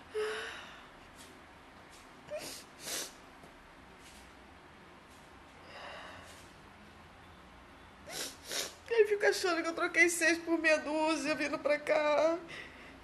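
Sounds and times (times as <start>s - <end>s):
sniffs: 2.4s - 3.2s, 8.1s - 8.8s.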